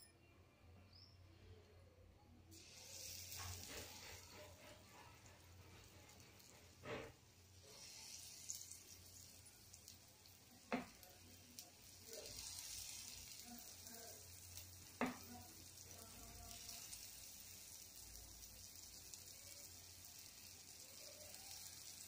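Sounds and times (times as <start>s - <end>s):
batter sizzling in hot oil: 2.5s - 22.0s
spoon tapping on pan: 10.7s - 11.1s, 15.0s - 15.3s.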